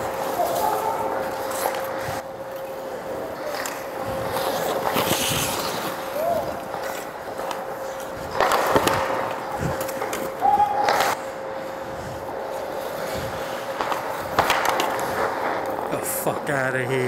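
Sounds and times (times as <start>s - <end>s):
skates scraping on ice: 0.0s - 17.0s
steady hum: 0.0s - 17.0s.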